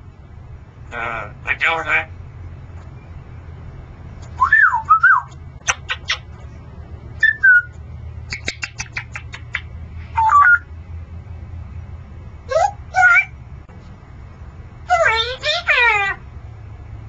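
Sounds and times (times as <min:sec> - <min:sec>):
parrot whistling: 0:04.4 - 0:06.2, 0:07.2 - 0:07.7, 0:08.3 - 0:10.7
parrot clicks: 0:08.3 - 0:09.7.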